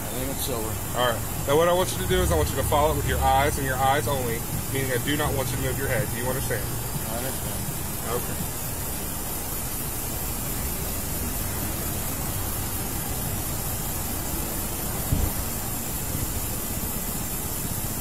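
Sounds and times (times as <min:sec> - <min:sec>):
even hiss: 0:00.0 - 0:18.0
short bump: 0:15.1 - 0:15.4.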